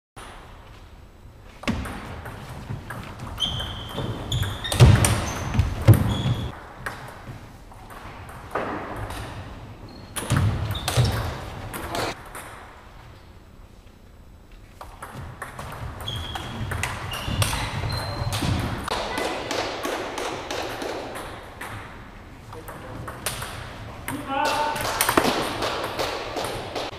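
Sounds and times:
shoes squeaking on wooden floor: 2.5 - 6.6, 15.8 - 19.2.

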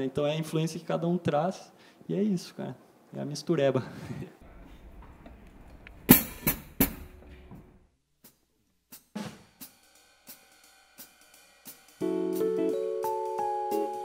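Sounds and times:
cymbal and drum hits: 6.1 - 7.3.

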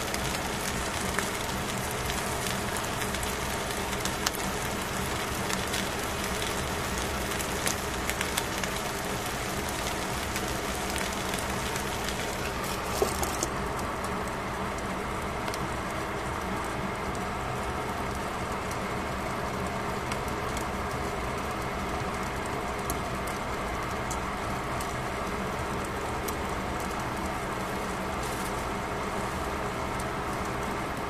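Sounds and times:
fish sizzling in a pan: 0.0 - 13.6.

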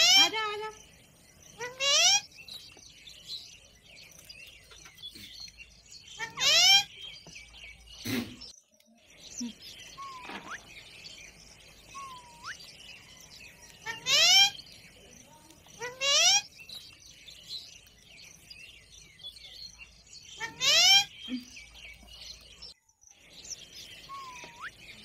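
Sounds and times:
parakeets screeching: 0.0 - 2.6, 4.7 - 7.2, 9.3 - 18.4, 19.4 - 22.4, 24.0 - 25.0
soft bird chirps: 0.0 - 25.0.

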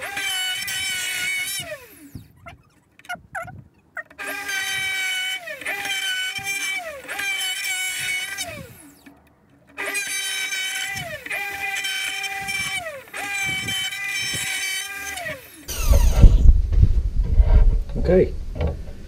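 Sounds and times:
router motor whining: 0.0 - 16.6
deep rumbling noise: 15.7 - 19.0.

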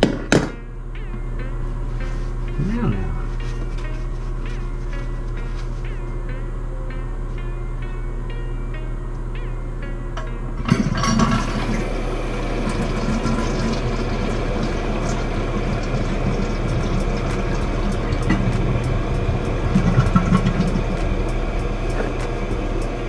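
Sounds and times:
toilet tank refilling: 10.6 - 23.0.

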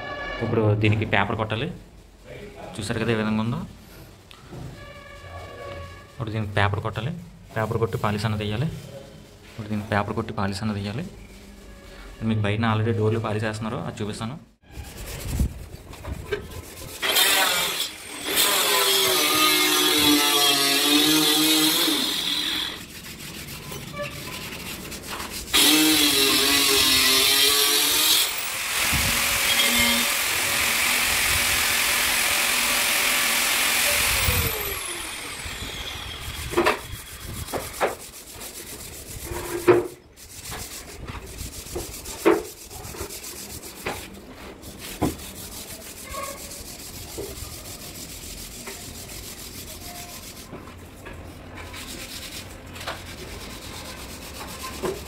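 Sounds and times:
sandpaper scrubbing on wood: 14.7 - 55.0.

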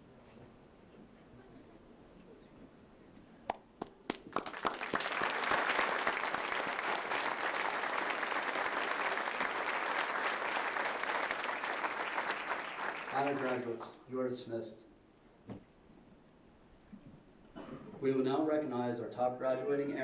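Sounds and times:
crowd applauding: 3.8 - 13.9.

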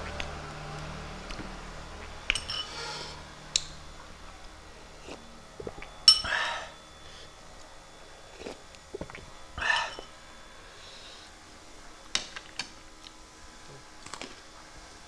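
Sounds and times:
spoon clinking against glass bowl: 2.3 - 2.8, 6.0 - 6.4
spoon scraping: 2.3 - 3.2.

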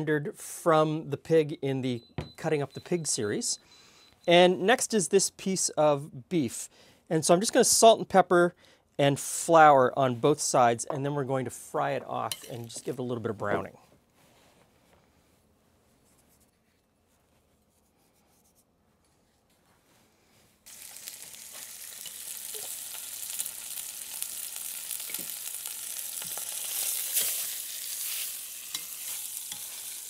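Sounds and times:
meat searing sizzle: 20.6 - 30.0.

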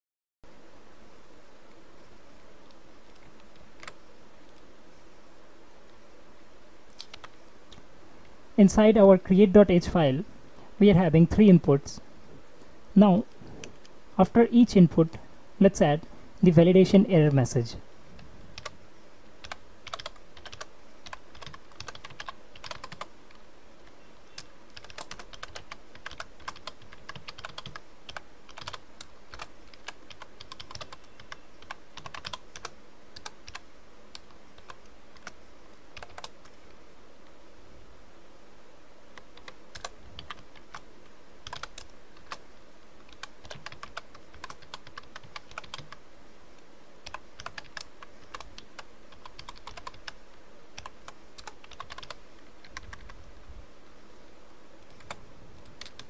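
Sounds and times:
computer keyboard typing: 3.1 - 4.6, 6.9 - 7.4, 18.6 - 18.8, 19.4 - 23.4, 24.4 - 35.4, 36.0 - 36.6, 39.2 - 42.4, 43.0 - 46.0, 47.0 - 50.2, 50.8 - 53.2, 54.8 - 56.0.

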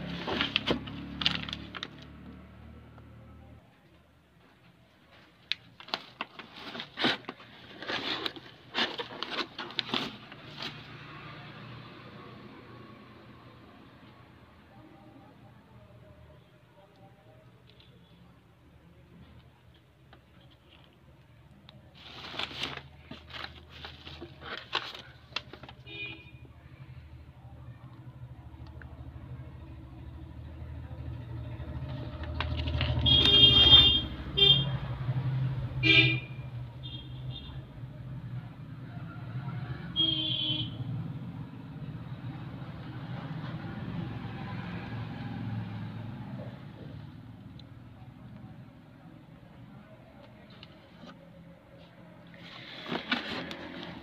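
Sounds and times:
traffic engines rumbling: 0.0 - 54.0
plastic and bubble wrap crinkling: 5.1 - 10.8, 21.8 - 25.9, 52.4 - 54.0
vehicle horn honks: 25.8 - 26.4, 32.9 - 34.8, 40.0 - 40.8.

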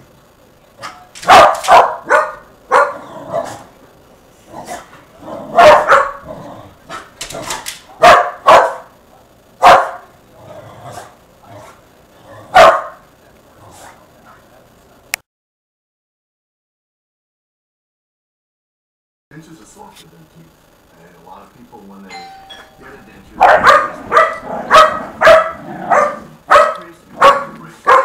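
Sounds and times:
dogs barking: 0.8 - 3.7, 4.6 - 9.0, 9.6 - 10.2, 12.4 - 13.1, 23.3 - 28.0.

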